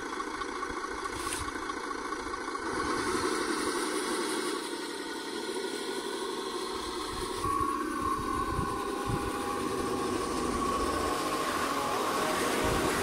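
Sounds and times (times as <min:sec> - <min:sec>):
rc truck running over gravel: 0:02.6 - 0:13.0.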